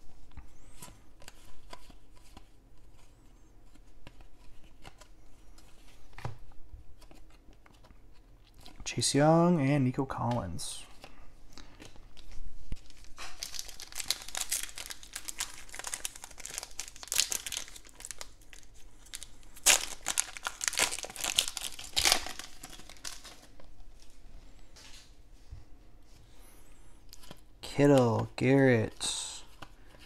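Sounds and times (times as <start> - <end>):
foil wrapper tearing and crinkling: 12.8 - 23.4.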